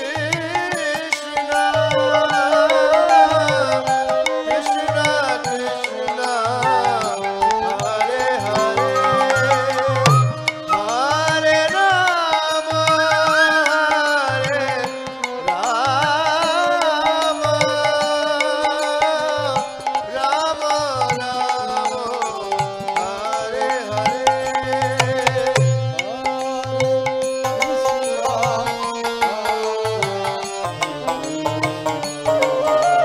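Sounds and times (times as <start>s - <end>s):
harmonium: 0.0s - 33.0s
ornamented melody line: 1.0s - 20.7s, 22.9s - 33.0s
hand drum: 8.6s - 10.7s, 24.3s - 26.0s.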